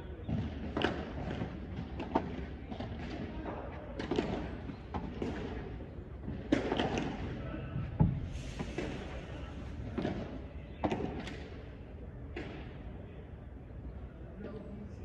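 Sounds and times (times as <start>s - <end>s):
rackets striking ball: 0.2s - 7.4s, 9.8s - 11.6s.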